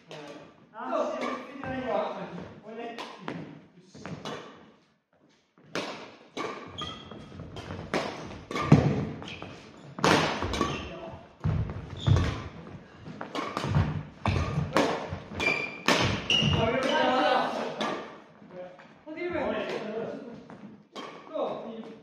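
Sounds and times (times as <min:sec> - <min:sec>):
rackets striking shuttlecock: 0:05.7 - 0:09.3, 0:10.0 - 0:10.8, 0:13.3 - 0:17.0.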